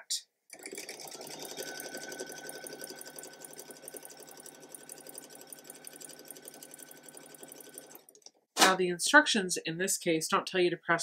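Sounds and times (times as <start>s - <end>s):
sewing machine stitching: 0.5s - 8.4s.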